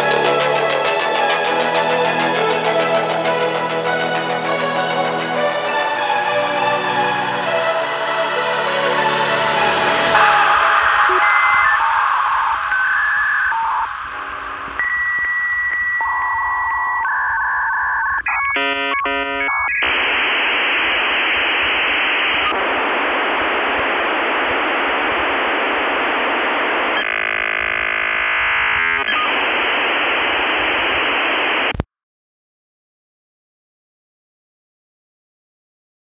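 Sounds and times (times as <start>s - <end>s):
dial-up modem tones and hiss: 10.1s - 31.9s.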